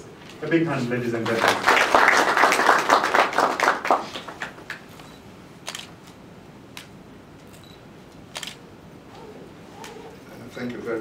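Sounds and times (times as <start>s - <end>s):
audience applause: 1.2s - 4.8s.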